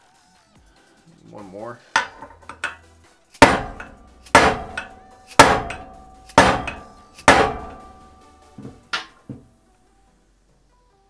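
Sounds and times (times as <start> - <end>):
hammer blows on metal: 2.0 - 2.8, 3.4 - 9.2
metal ringing: 2.0 - 9.3.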